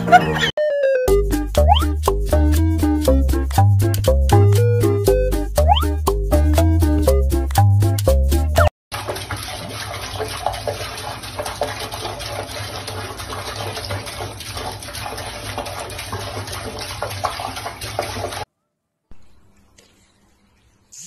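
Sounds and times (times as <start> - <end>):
tap water running into sink: 8.9 - 18.5.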